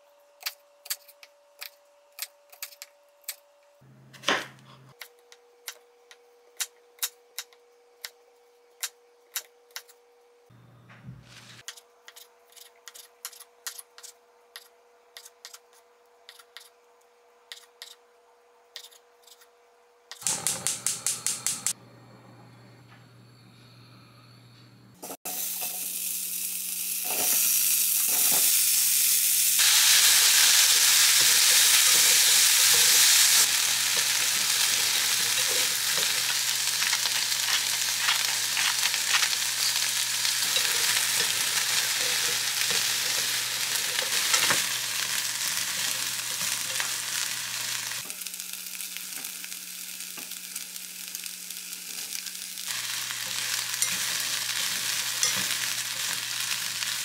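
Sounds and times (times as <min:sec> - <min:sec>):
vegetables sizzling in hot oil: 0:25.3 - 0:57.0
stirring clicks and scrapes: 0:36.8 - 0:39.3.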